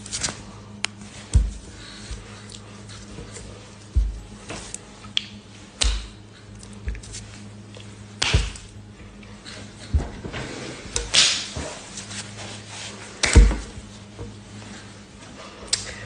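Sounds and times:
steady low hum: 0.0s - 16.0s
cloth rustling and swishing: 10.5s - 15.0s.

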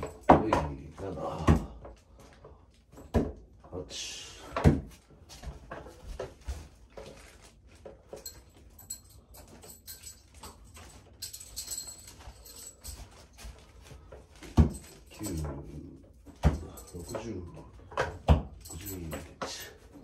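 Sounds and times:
light knocks and metallic clinks: 0.0s - 20.0s.

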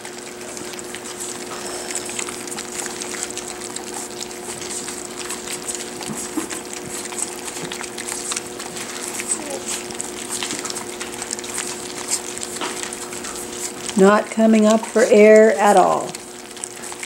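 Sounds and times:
faint steady hum: 0.0s - 17.0s
puppies lapping and chewing food: 0.0s - 17.0s.

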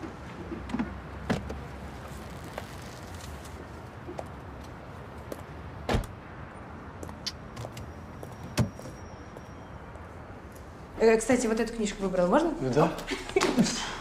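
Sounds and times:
car door closing thud: 5.9s - 6.1s.

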